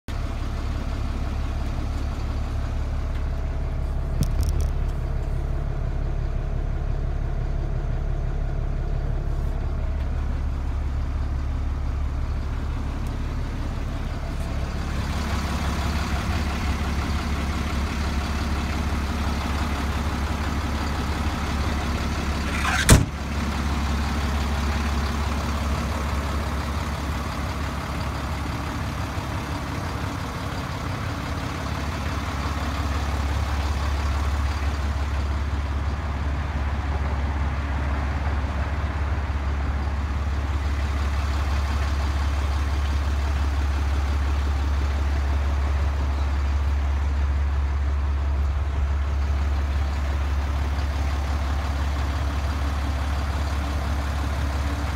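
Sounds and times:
diesel truck engine idling: 0.1s - 54.9s
cab door slamming shut: 22.5s - 23.2s.

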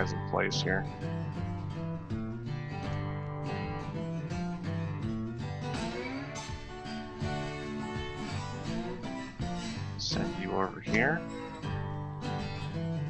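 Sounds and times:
guitar plucked and strummed: 0.0s - 13.0s.

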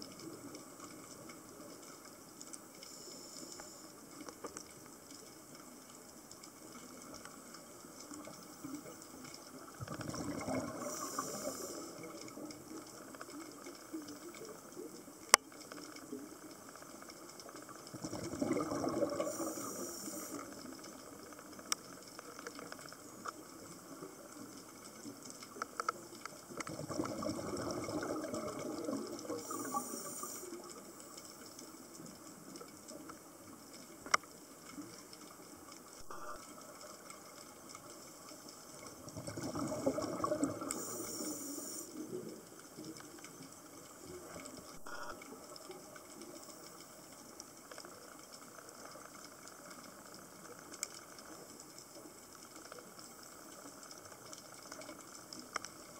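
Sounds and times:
exhaled bubbles rushing underwater: 9.5s - 13.6s, 17.4s - 21.6s, 26.4s - 31.1s, 38.7s - 46.1s.

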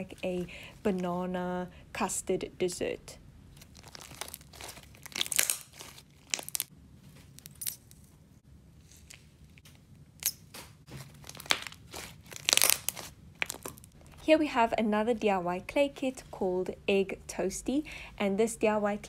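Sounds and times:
sticky crackles and pops: 9.1s - 14.0s.

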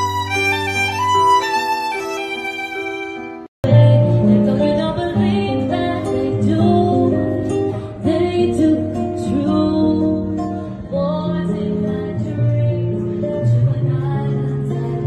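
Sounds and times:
acoustic guitar: 0.0s - 15.0s
person singing: 3.6s - 15.0s.

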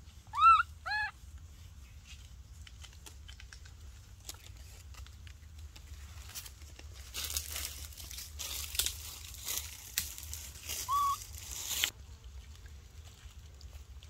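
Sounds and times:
dry dirt and leaves crackling: 0.0s - 14.0s
baby monkey squealing cries: 0.3s - 1.2s, 10.8s - 11.2s.

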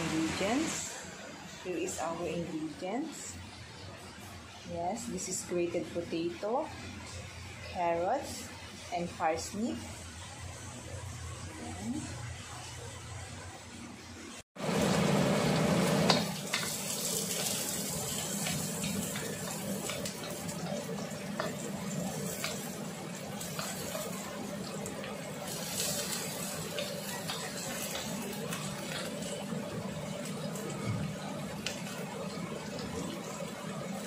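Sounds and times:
onion sizzling in hot oil: 14.6s - 34.0s.

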